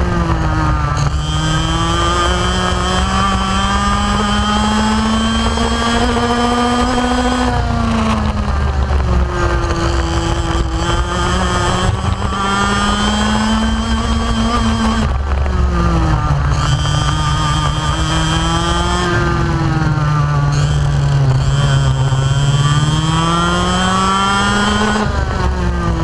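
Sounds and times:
kart engine revving: 0.0 - 26.0.

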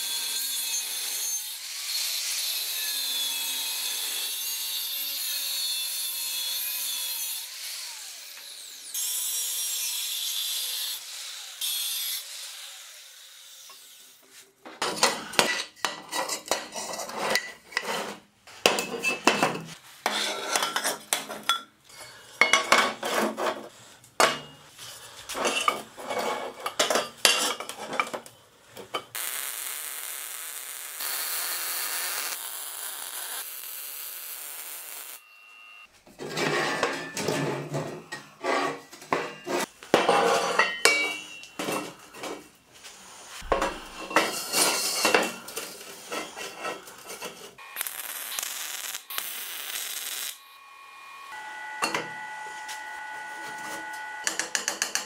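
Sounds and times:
steel tubes clanking and scraping: 14.6 - 29.2, 36.2 - 42.5, 43.4 - 47.6
welding hissing crackle: 29.1 - 35.2, 47.6 - 50.5.

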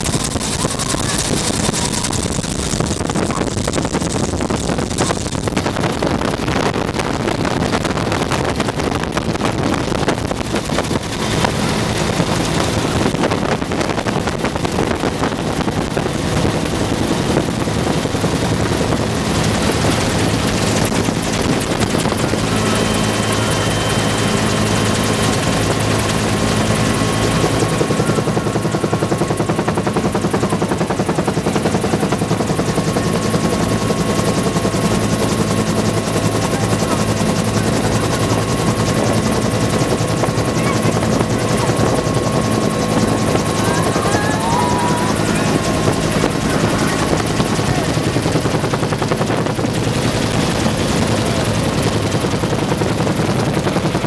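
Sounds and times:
helicopter rotor and engine noise: 0.0 - 54.0
thin high whine: 21.5 - 28.3.

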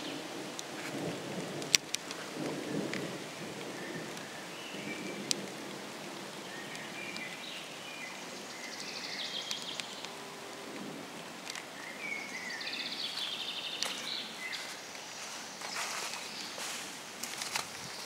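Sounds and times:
distant thunder rumble: 0.0 - 7.7
light rain: 0.0 - 18.0.

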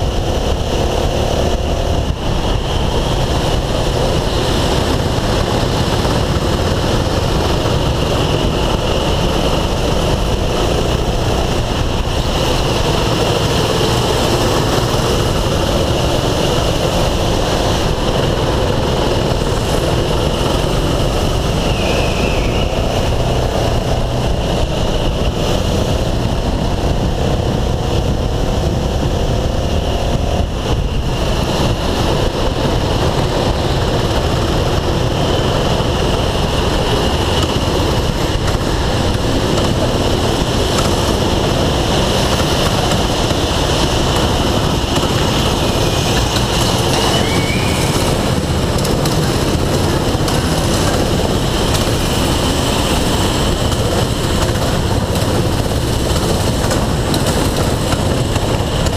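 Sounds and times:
go-kart engine running: 0.0 - 58.9
rushing wind noise: 0.0 - 58.9.

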